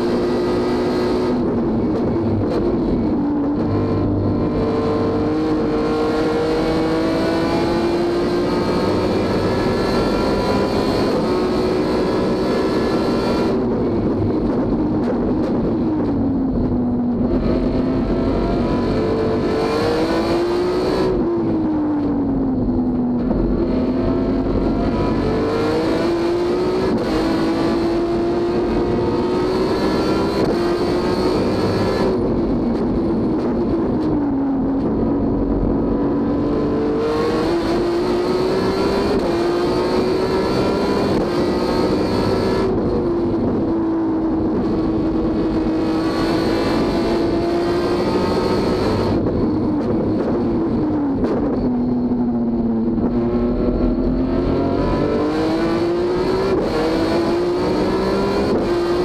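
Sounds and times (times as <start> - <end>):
race car engine accelerating: 0.0 - 59.0.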